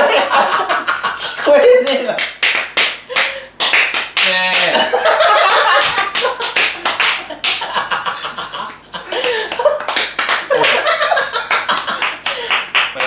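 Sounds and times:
laughter: 0.0 - 1.4, 4.7 - 9.8, 10.5 - 12.2
people clapping hands: 1.2 - 7.8, 8.6 - 13.0.

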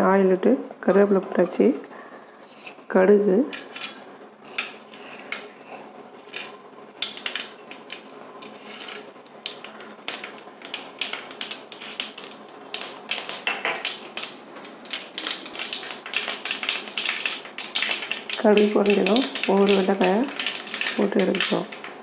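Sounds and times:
mustard seeds popping in oil: 6.9 - 8.1, 9.3 - 22.0.

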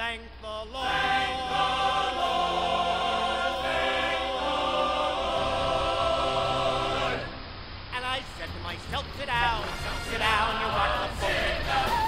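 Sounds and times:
chorus singing held chord: 0.4 - 7.5, 9.4 - 12.0.

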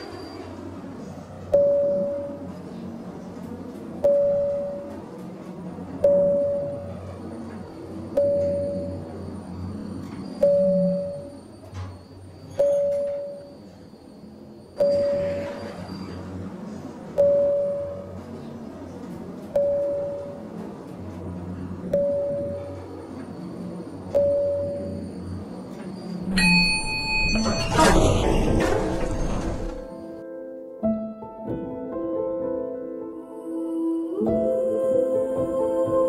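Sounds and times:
electronic ping: 26.3 - 27.9
short rushing noise: 27.2 - 30.1.

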